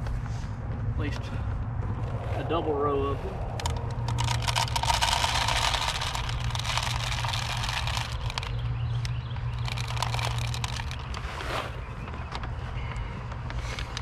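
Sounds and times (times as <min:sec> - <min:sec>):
steady low hum: 0:00.0 - 0:14.0
seeds rattling into plastic hopper: 0:03.6 - 0:08.6, 0:09.6 - 0:11.2.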